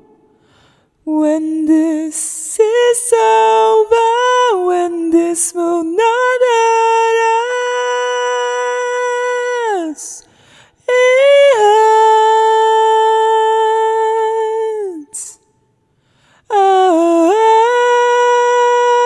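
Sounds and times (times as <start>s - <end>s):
quick breath: 0.3s - 1.0s, 10.2s - 10.8s, 15.9s - 16.5s.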